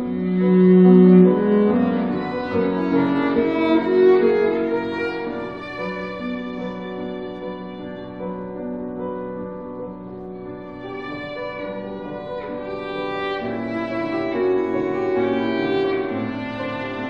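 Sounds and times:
bowed cello notes: 0.0 - 8.3, 10.6 - 17.0
piano accompaniment: 0.0 - 17.0.

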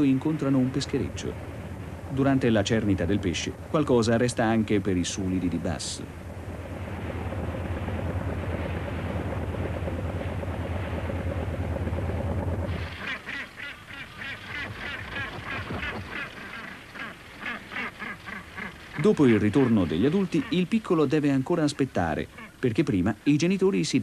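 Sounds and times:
boat engine humming: 0.0 - 24.0
gannets calling harshly: 12.7 - 21.1.

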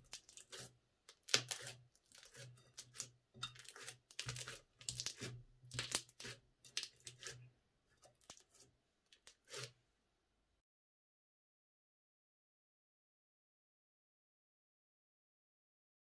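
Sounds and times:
crunchy slime being squished: 0.0 - 3.0, 3.6 - 7.3.

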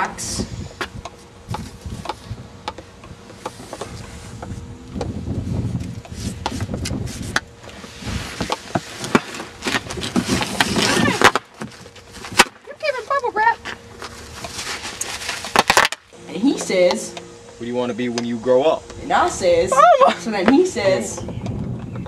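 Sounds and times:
cardboard knocks scrapes and rustles: 3.3 - 12.5, 14.0 - 15.9.

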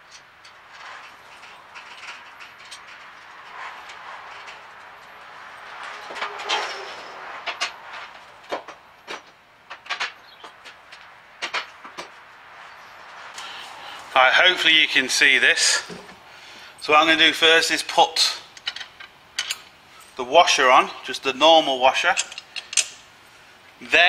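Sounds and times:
metal scraping: 0.0 - 10.2
steel towbar clinking and knocking: 0.0 - 12.1.

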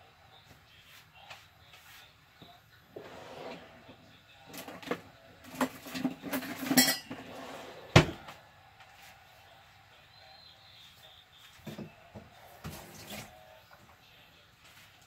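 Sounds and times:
dishes and utensils clattering: 4.5 - 8.3.

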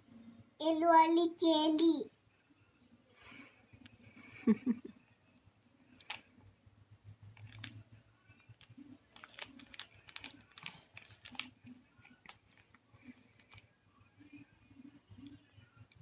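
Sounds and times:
plastic packet crinkling: 7.4 - 7.8, 8.4 - 13.6.

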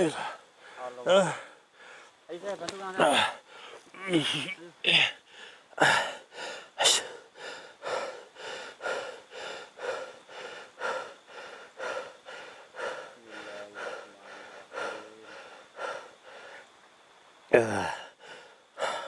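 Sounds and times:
faint low hum: 0.0 - 19.0
person breathing hard: 4.9 - 16.7, 17.6 - 19.0.

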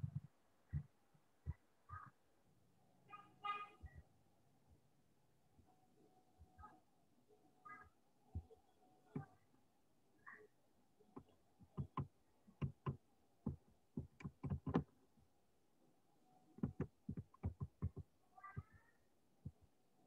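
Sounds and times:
computer keyboard clacking: 11.8 - 14.9.

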